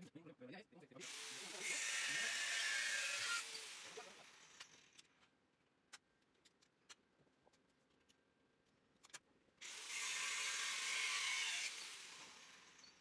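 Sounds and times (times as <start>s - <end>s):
bench grinder grinding steel: 1.0s - 4.7s, 9.6s - 13.0s.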